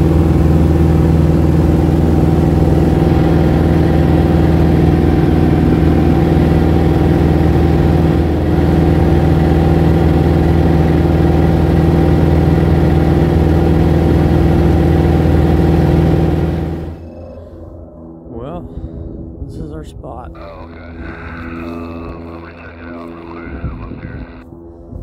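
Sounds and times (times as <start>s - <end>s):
plane engine and propeller droning: 0.0s - 25.0s.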